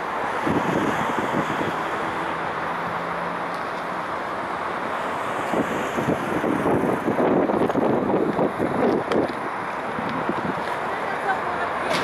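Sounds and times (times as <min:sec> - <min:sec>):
wind buffeting microphone: 0:00.0 - 0:02.4, 0:05.3 - 0:12.0
city road traffic: 0:00.0 - 0:12.0.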